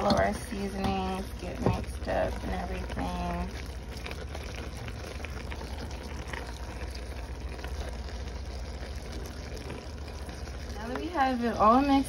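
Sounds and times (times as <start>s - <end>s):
meat sizzling in a frying pan: 0.1s - 12.0s.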